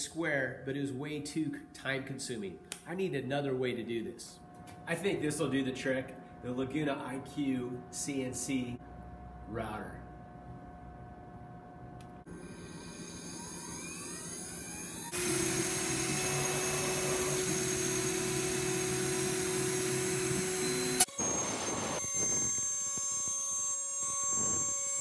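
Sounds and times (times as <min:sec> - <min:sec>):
router bit cutting plywood: 0:12.3 - 0:25.0
router spindle whining: 0:12.3 - 0:25.0.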